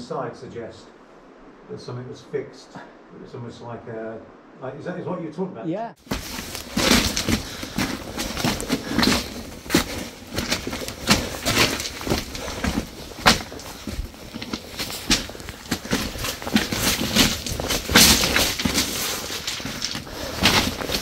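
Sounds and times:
rock rubble crunching underfoot: 6.0s - 21.0s
stones cracking and knocking: 6.0s - 21.0s.

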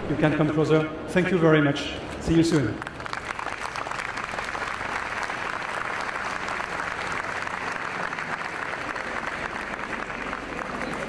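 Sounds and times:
large audience applauding: 2.8s - 11.0s.

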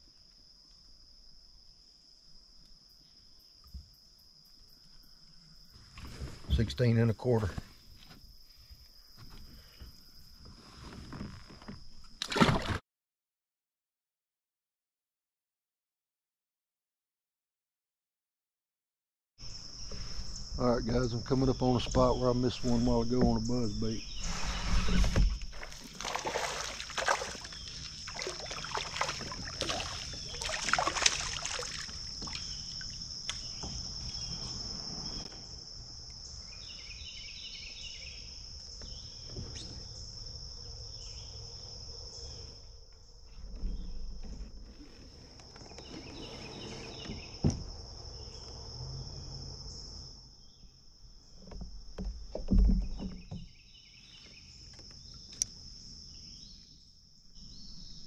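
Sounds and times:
insect chorus: 0.0s - 12.8s, 19.4s - 58.0s
kayak water and hull noises: 4.8s - 12.8s, 21.6s - 35.6s, 43.1s - 48.0s, 51.0s - 55.7s.

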